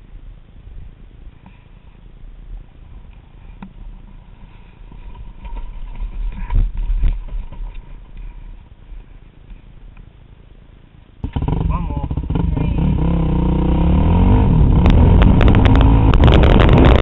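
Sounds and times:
dirt bike knocks and scrapes: 3.6s - 8.6s.

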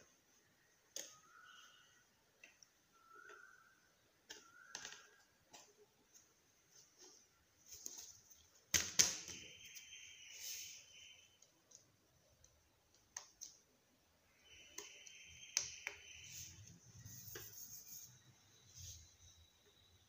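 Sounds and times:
brushing rubs: 16.3s - 19.3s.

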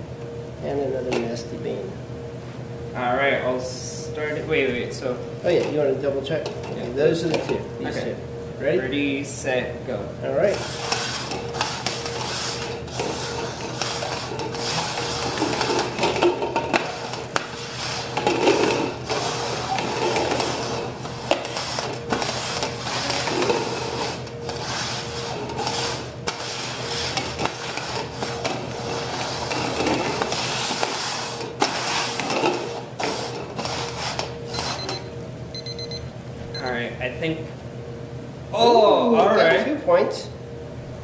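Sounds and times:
plastic cups scraping on wooden table: 10.5s - 34.8s.

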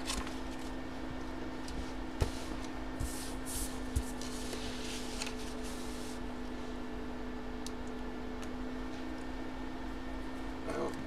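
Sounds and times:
paper rustling: 0.0s - 0.7s, 1.7s - 6.2s
steady low hum: 0.0s - 11.0s.

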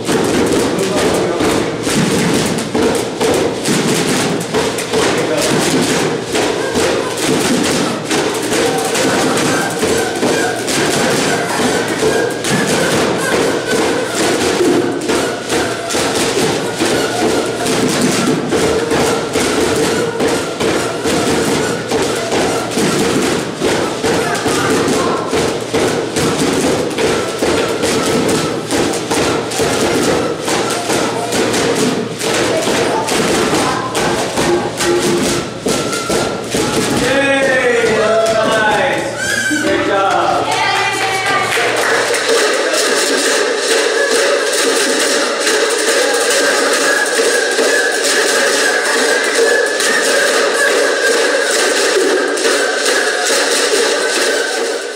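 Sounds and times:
plastic container drums thumping: 0.0s - 54.9s
rain shakers: 0.0s - 54.9s
rubber-band harmonica buzzing drone: 5.8s - 33.1s.

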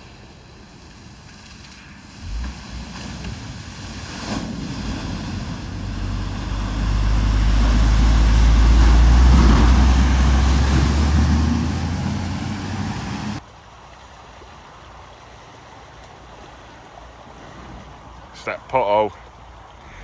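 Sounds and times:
vehicle engine hum: 0.0s - 13.5s
water splashing and rushing: 0.0s - 20.0s.

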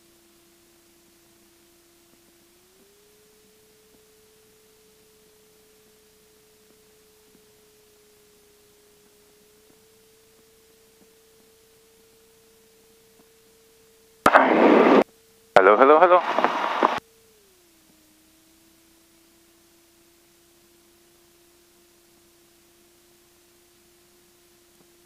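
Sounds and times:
faint steady whine: 0.0s - 25.0s.

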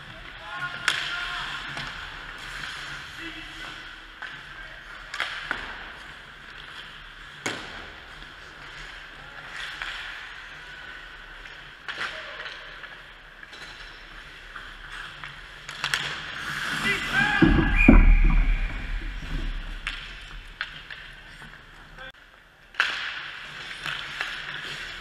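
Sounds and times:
skates scraping ice: 0.0s - 25.0s
arena ambience: 16.7s - 22.1s
sharp knocks: 17.3s - 20.4s.

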